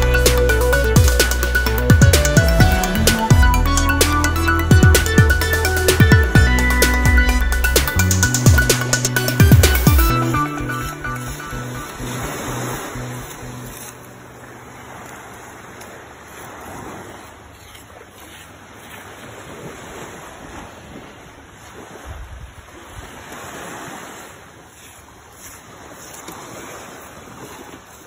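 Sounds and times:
small waves breaking on shore: 8.8 - 28.0
wind buffeting microphone: 19.1 - 24.2.

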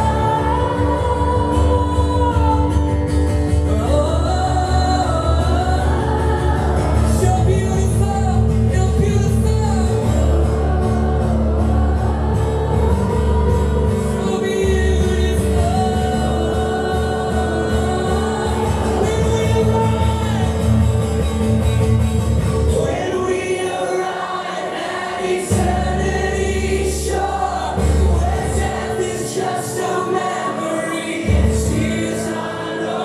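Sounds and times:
worship music with singing: 0.0 - 21.7, 22.6 - 33.0.

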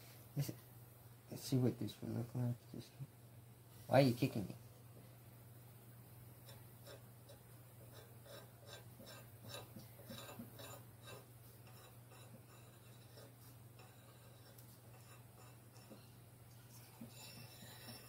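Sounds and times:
steady low hum: 0.0 - 18.0
faint light scratching: 6.4 - 18.0.

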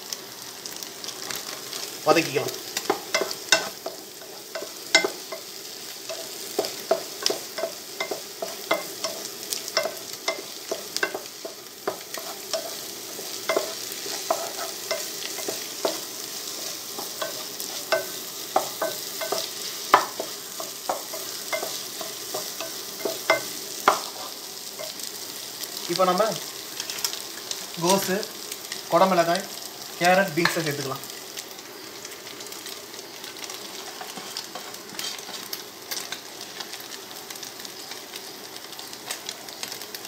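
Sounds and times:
oil sizzling: 0.0 - 40.0
wooden spatula knocking a pot: 17.0 - 21.8.

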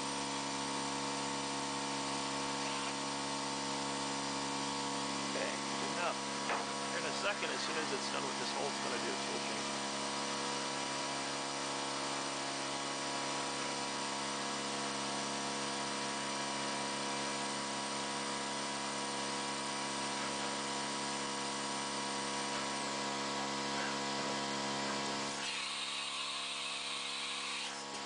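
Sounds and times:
drill spindle motor whine: 21.5 - 28.0.

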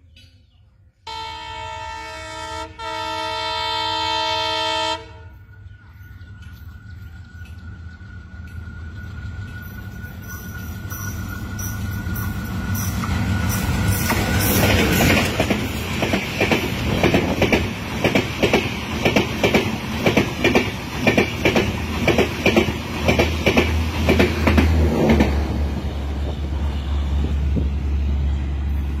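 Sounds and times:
low steady train rumble: 0.0 - 29.0
train wheels clattering over rails: 6.3 - 25.7.

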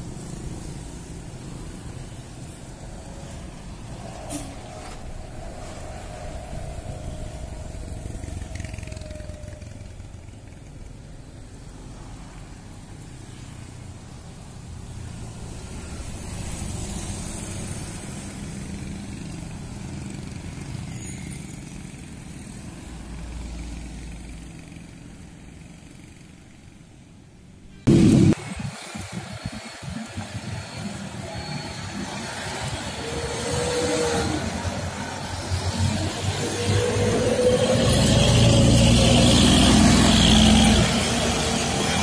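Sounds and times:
diesel coach engines rumbling: 0.0 - 42.0
motorcycles running: 5.0 - 14.0.

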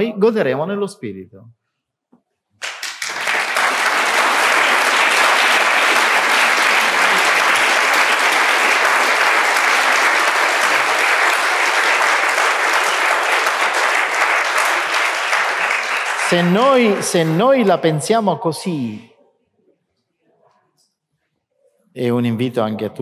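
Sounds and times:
audience applauding: 2.6 - 18.2.

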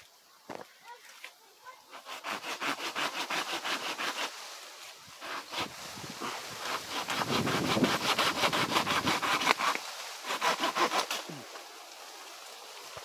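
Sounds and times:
hand saw cutting branch: 1.9 - 4.4, 5.2 - 11.4.

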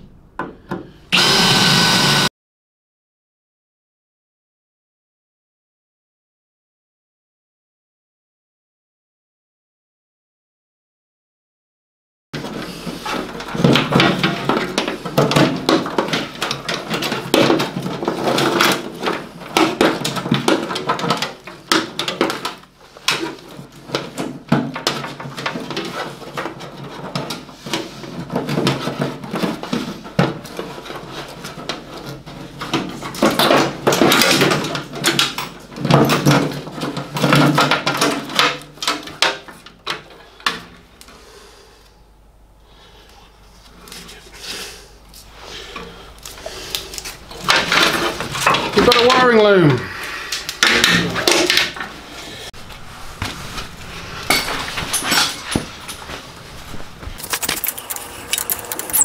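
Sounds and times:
wires rustling: 45.0 - 59.0.

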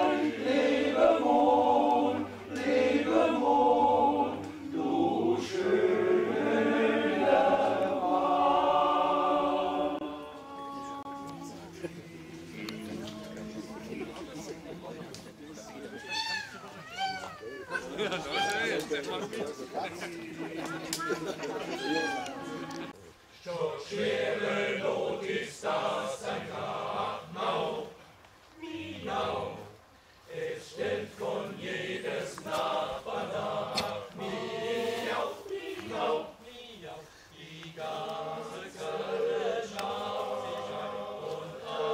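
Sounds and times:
choir singing a cappella: 0.0 - 15.2, 19.0 - 41.9.

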